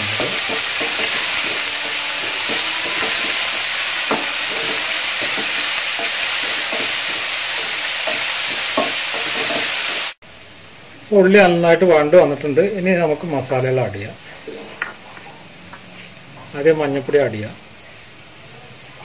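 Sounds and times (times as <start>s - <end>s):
wooden spatula scraping pan: 0.0s - 10.0s
onions sizzling in oil: 0.0s - 19.0s.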